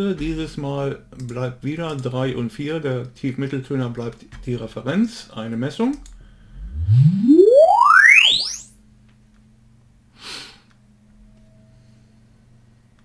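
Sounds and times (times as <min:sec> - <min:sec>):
sine sweep tone: 0:06.6 - 0:08.6.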